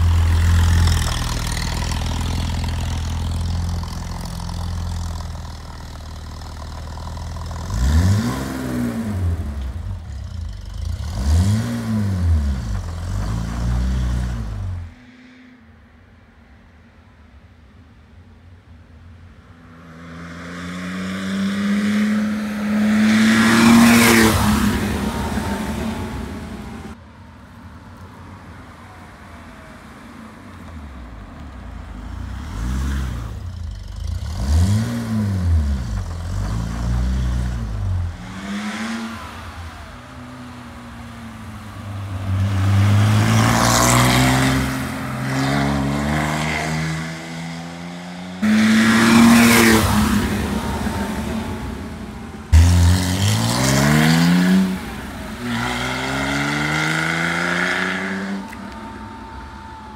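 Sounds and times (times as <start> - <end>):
sports car revving past: 19.8 - 27.0, 32.2 - 58.5.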